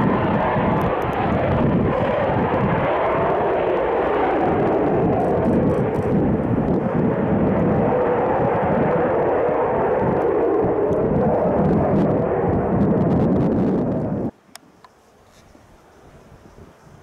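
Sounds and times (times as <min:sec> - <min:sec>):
airplane engines roaring: 0:00.0 - 0:15.0.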